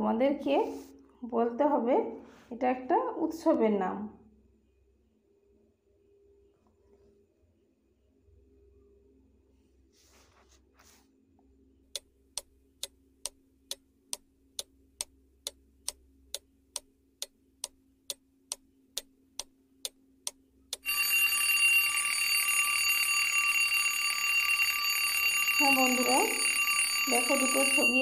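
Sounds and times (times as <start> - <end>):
clock ticking: 11.9 - 21.2
alarm clock bell ringing: 20.8 - 28.0.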